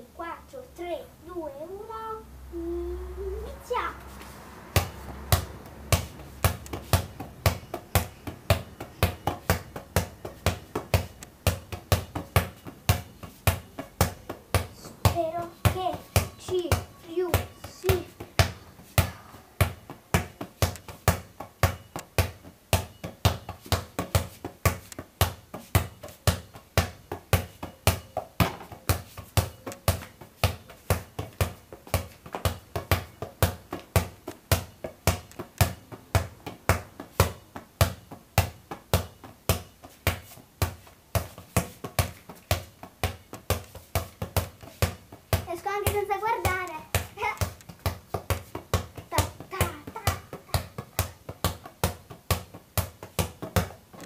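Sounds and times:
ball bouncing on floor: 4.7 - 54.0.

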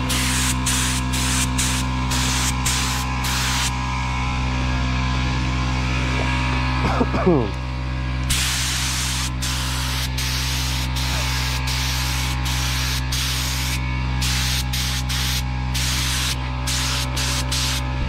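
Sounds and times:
paint spray gun hissing: 0.0 - 3.8, 8.2 - 18.0
steady low hum: 0.0 - 18.0.

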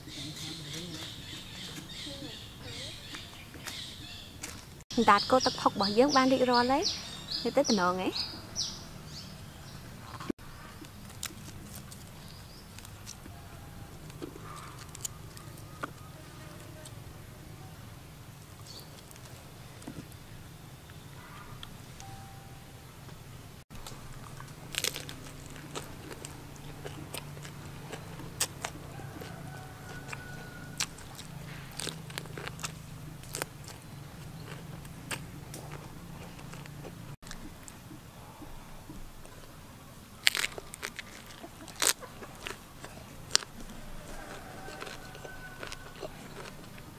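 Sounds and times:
person chewing crunchy food: 10.1 - 16.0, 23.7 - 38.0, 40.2 - 46.9.

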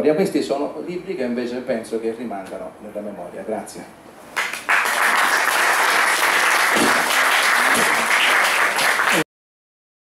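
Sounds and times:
audience applauding: 4.4 - 9.3.

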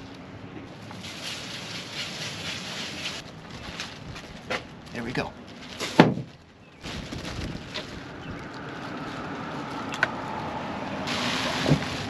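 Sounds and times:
plastic sheeting rustle: 0.8 - 12.0
dull thump: 5.9 - 6.3
wind on microphone: 6.8 - 9.2.

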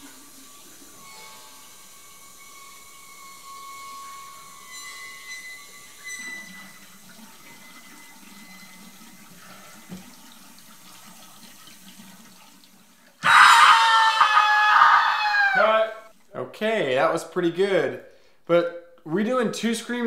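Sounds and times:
tap running into a sink: 5.7 - 12.8.

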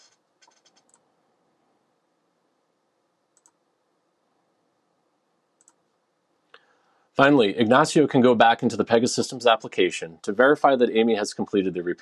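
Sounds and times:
computer mouse clicks: 0.0 - 1.1, 3.3 - 3.6, 5.6 - 6.0.

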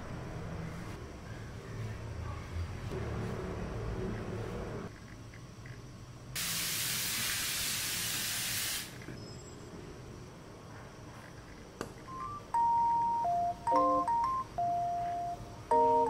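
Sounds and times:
aerosol can spraying hiss: 6.4 - 9.0.

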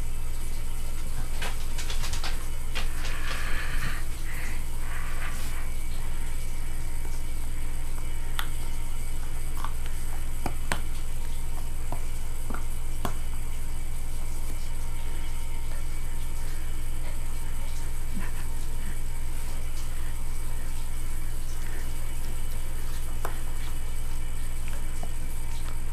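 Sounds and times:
puppy chewing toy ball: 0.8 - 14.8.

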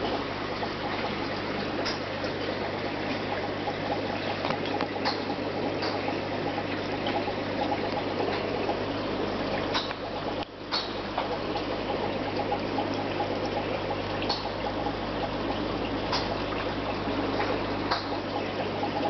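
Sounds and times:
pump hum: 0.0 - 19.0
water trickling and splashing: 0.0 - 19.0.

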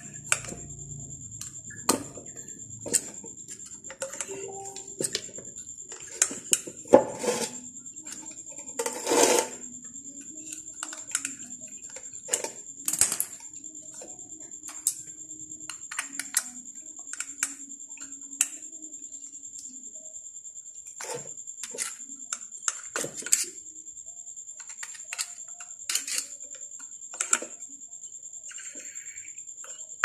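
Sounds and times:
high-pitched whine: 0.0 - 5.8.

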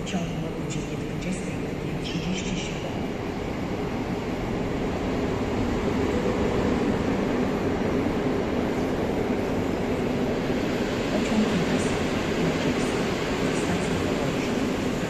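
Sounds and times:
train running: 0.0 - 15.0.

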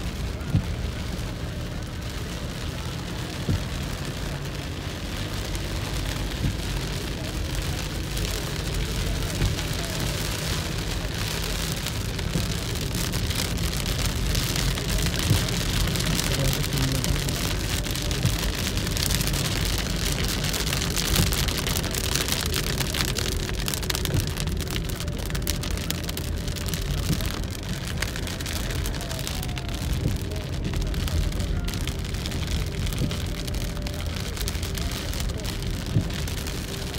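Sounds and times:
heavy rain on car windshield: 0.0 - 36.9
tyres and engine rumble: 0.0 - 36.9.

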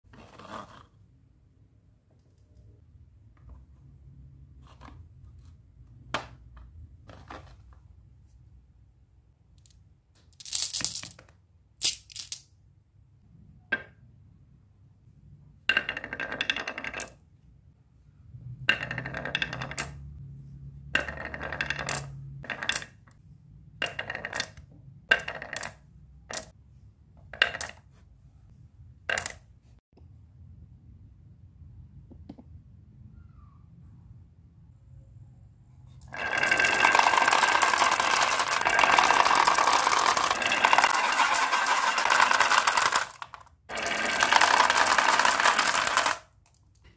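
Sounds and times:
marbles clacking: 9.6 - 11.2, 11.8 - 12.5, 15.7 - 17.2, 18.7 - 20.1, 20.9 - 23.0, 23.8 - 26.5, 29.1 - 29.4, 36.0 - 46.8
marbles rolling on wooden track: 9.6 - 12.5, 15.6 - 17.3, 18.5 - 20.2, 20.8 - 23.2, 23.8 - 26.5, 27.3 - 27.8, 29.1 - 29.4, 36.0 - 46.9.

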